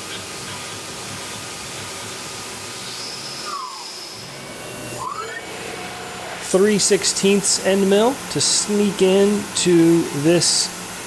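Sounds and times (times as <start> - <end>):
machine hissing: 0.0 - 11.0
drill whine: 2.7 - 11.0.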